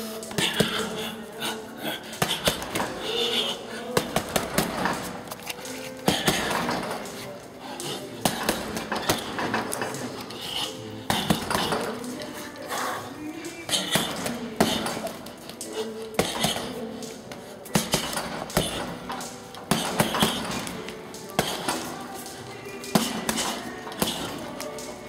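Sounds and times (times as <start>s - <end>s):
background music: 0.0s - 25.0s
gloves hitting punching ball: 3.9s - 5.4s, 11.0s - 12.2s, 13.7s - 25.0s.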